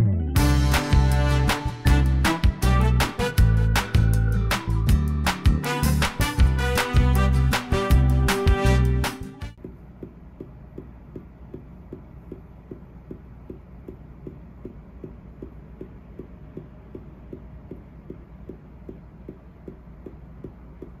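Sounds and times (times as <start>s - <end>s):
steady low hum: 9.5s - 21.0s
faint regular ticking: 10.4s - 21.0s.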